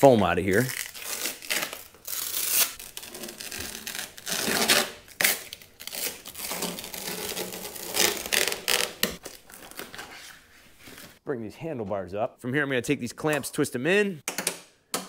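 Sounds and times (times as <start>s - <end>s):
foam sheets rustling and scraping: 5.9s - 11.2s.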